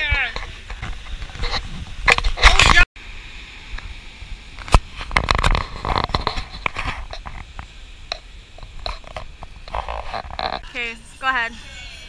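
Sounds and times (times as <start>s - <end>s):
wind rumble on microphone: 0.0s - 2.8s.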